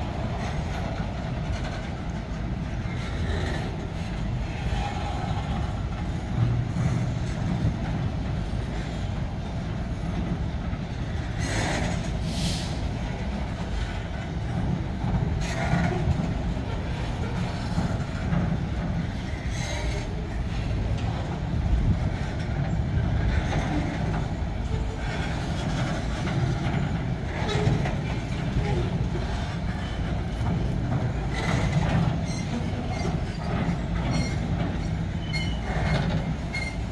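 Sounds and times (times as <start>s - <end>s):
train wheels rumbling on rail: 0.0s - 36.9s
high-pitched wheel squeals: 34.1s - 36.9s.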